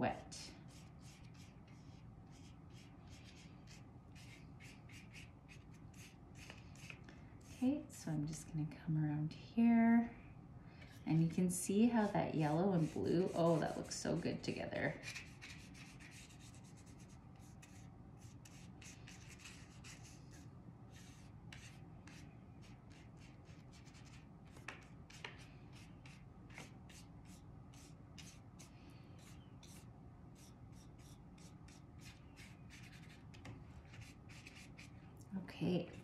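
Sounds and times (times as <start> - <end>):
paintbrush swishing on paper: 0.7 - 7.6, 10.9 - 14.3, 15.0 - 33.2.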